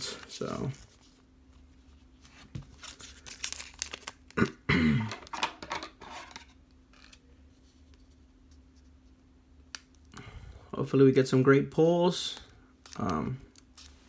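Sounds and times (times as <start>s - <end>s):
plastic packaging crinkling: 2.7s - 4.4s.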